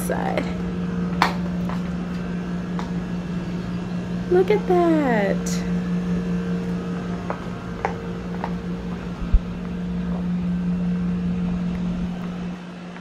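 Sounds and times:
air conditioner unit humming: 0.0 - 13.0
wind rumbling on microphone: 9.0 - 10.6.

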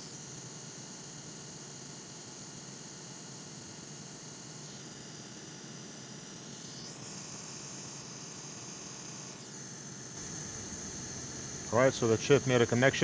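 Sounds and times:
hot air station airflow hiss: 10.2 - 13.0.

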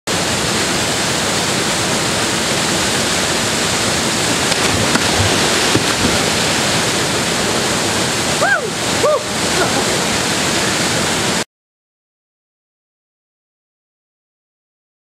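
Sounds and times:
waterfall rushing into pool: 0.1 - 11.5.

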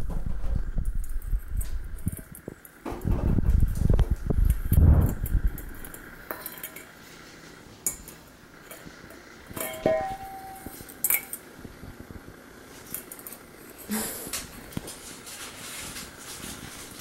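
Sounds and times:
metal bowl scraping: 4.7 - 11.4
metal bowl clanking: 5.1 - 7.0, 7.8 - 11.4.

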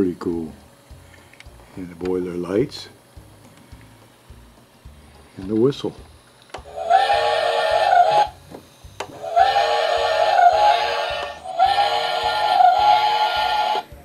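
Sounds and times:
toy steam whistle blowing: 6.6 - 8.4, 9.1 - 13.9.

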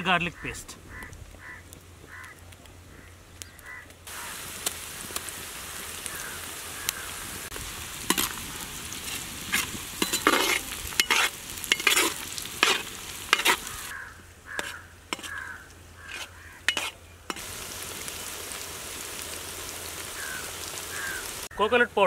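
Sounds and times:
food sizzling in hot oil: 4.0 - 13.9, 16.0 - 21.5
metal skimmer scraping pan: 9.0 - 13.7, 14.6 - 15.4, 16.0 - 17.5.

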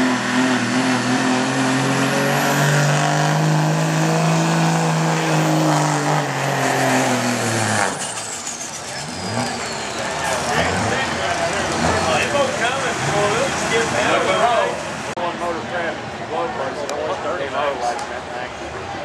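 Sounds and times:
diesel engine revving under load: 0.0 - 15.2.

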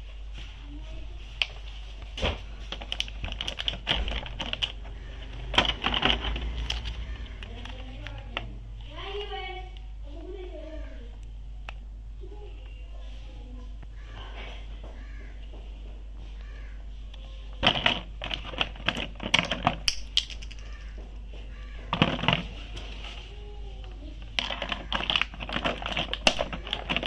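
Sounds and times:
plastic blister tray crackling: 1.3 - 9.4, 17.5 - 19.9, 21.5 - 27.0.

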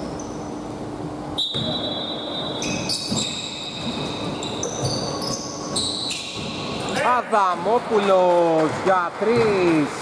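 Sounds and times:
shoes squeaking on gym floor: 0.0 - 0.8, 1.4 - 7.3
murmur of large hall: 0.0 - 10.0.

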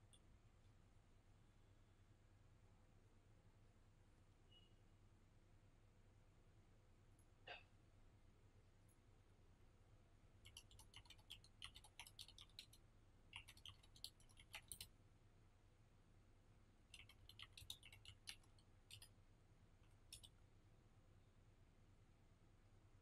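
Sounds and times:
typing on computer keyboard: 10.4 - 14.9, 16.9 - 19.1, 19.9 - 20.4.

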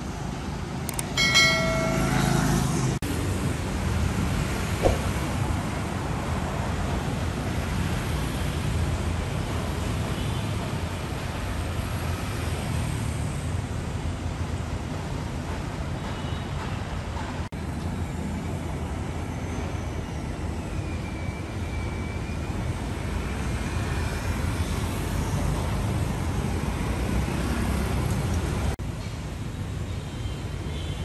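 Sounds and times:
cars and motorbikes passing: 0.6 - 6.5.

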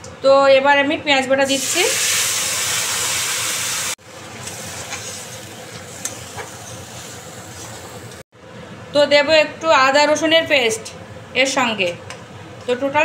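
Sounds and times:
paste sizzling in hot oil: 1.5 - 6.7.

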